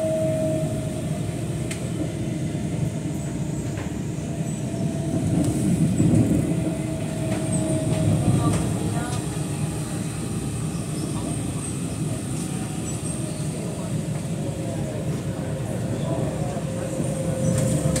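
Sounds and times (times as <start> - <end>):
train rumbling inside carriage: 0.0 - 18.0.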